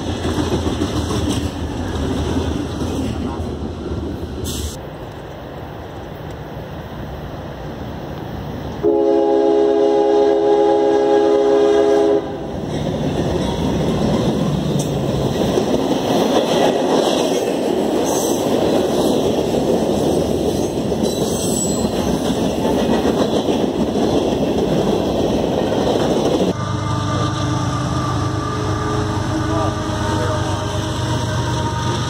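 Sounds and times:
train cars rolling past: 0.0 - 32.0
locomotive air horn blast: 8.8 - 12.4, 26.5 - 32.0.

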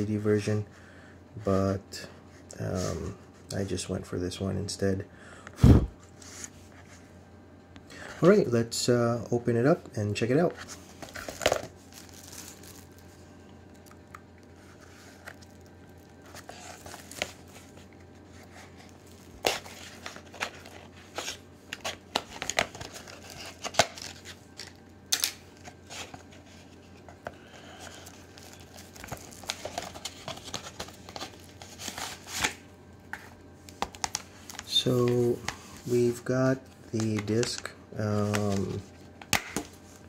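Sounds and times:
plastic shrink-wrap crinkling: 11.0 - 13.1, 27.7 - 32.6.

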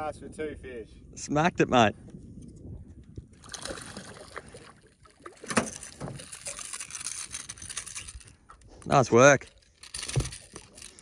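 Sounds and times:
fish thrashing and splashing in water: 3.4 - 8.0.

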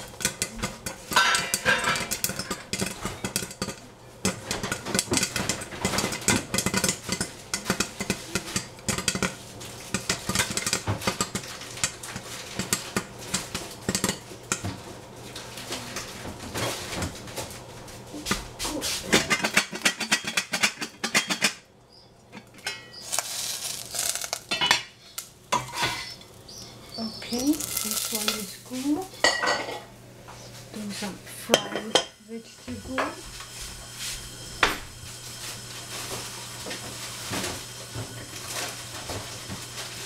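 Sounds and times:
metal spatula scraping a pan: 1.1 - 3.7, 22.4 - 28.6.

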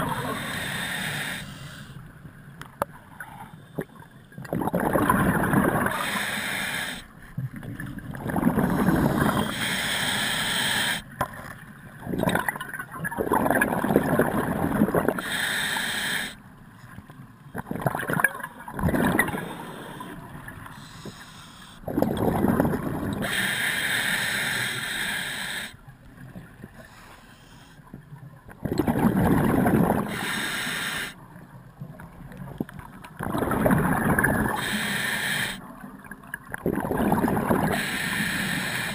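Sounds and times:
regulator inhale hiss: 0.1 - 2.1, 5.9 - 7.1, 8.7 - 11.1, 15.2 - 16.4, 19.4 - 21.9, 23.2 - 25.8, 26.8 - 27.9, 30.0 - 31.2, 34.5 - 35.6, 37.7 - 38.9
exhaled bubbles underwater: 3.0 - 6.2, 7.3 - 9.6, 11.2 - 15.3, 17.5 - 20.9, 21.8 - 23.4, 28.2 - 30.3, 31.8 - 34.8, 35.6 - 38.9.

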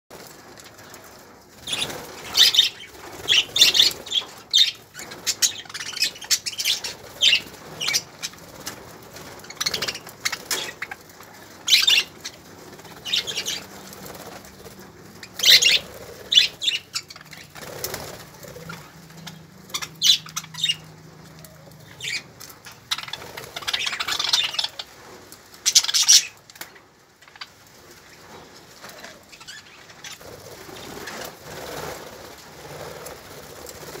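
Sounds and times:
birds flapping wings: 0.1 - 34.0
budgerigars chirping: 11.7 - 12.1, 15.4 - 17.6, 19.2 - 20.9.

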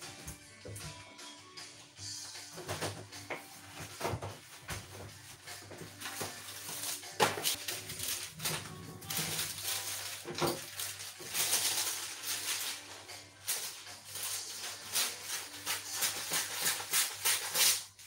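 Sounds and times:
background music: 0.0 - 18.0
dishes and utensils clattering: 2.4 - 17.8
rustling: 3.8 - 17.8.

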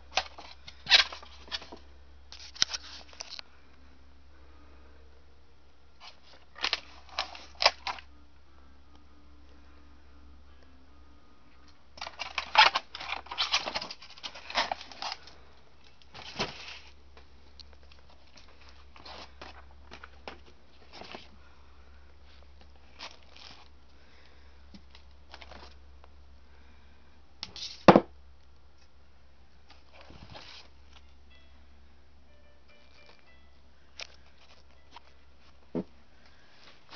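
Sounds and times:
steady low hum: 0.0 - 36.9
plastic cases clacking and rustling: 0.1 - 1.8, 6.0 - 8.0, 12.0 - 16.9.

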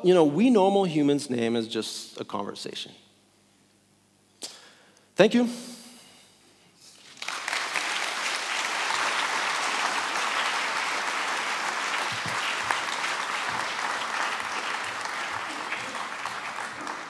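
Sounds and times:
audience applauding: 7.0 - 17.0.

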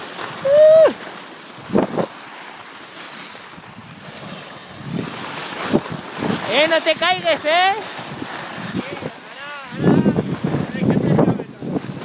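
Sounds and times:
wind buffeting microphone: 0.0 - 2.2, 3.4 - 12.0
skis sliding on snow: 0.0 - 12.0
person shouting: 0.4 - 1.0.

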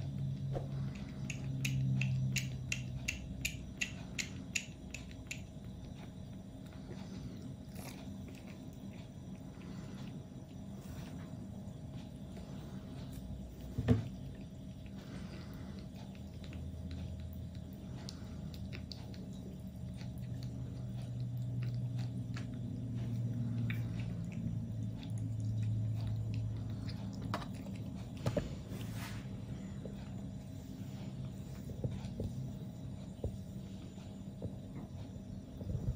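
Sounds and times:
low steady hum: 0.0 - 35.9
kitten suckling from bottle: 11.4 - 28.6.

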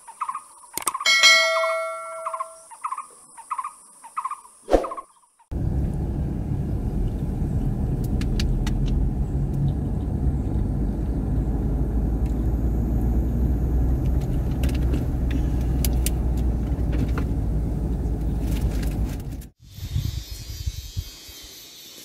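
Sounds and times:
car engine and tyre rumble: 5.5 - 19.6.

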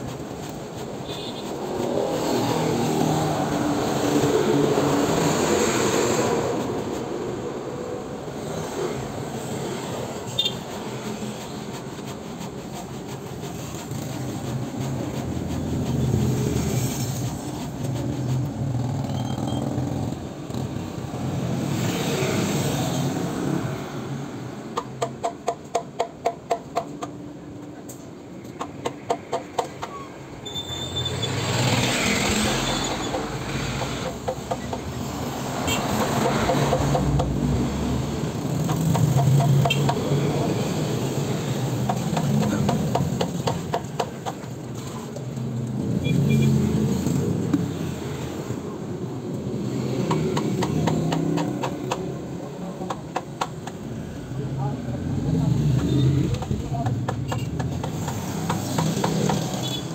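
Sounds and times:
motorcycles passing: 0.0 - 12.4, 31.2 - 59.9
road traffic passing: 0.0 - 59.9
heavy truck passing: 31.1 - 43.2.

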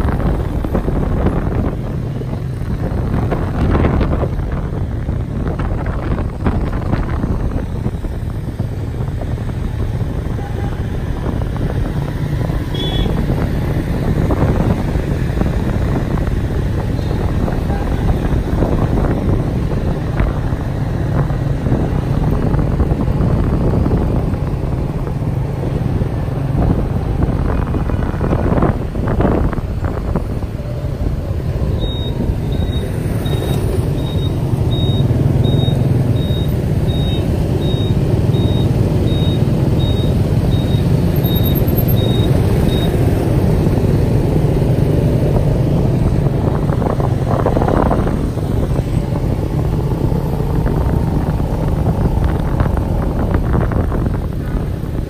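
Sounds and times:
car road rumble: 0.0 - 55.0
short high beeps: 31.8 - 43.0.

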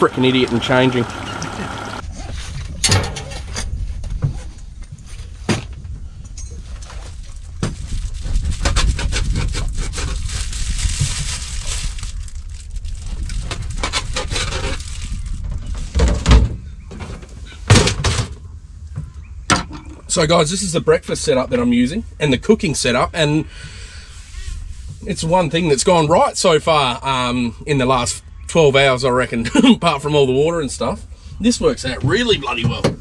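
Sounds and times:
low steady rumble: 0.0 - 17.4.

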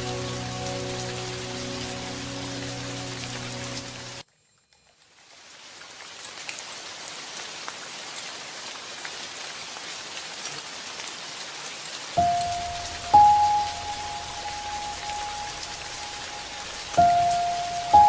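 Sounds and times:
held musical note: 0.0 - 4.2, 12.2 - 18.0.

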